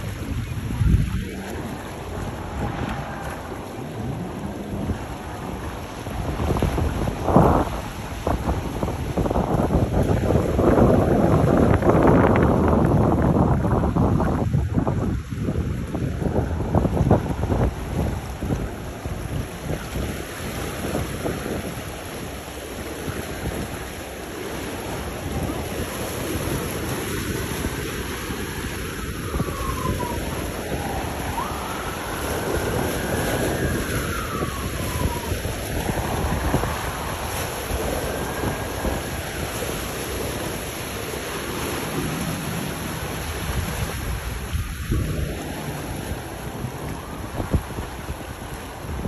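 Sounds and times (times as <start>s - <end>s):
boat engines running: 0.0s - 14.6s, 15.2s - 49.0s
choppy water: 0.0s - 49.0s
wind noise on microphone: 0.0s - 49.0s.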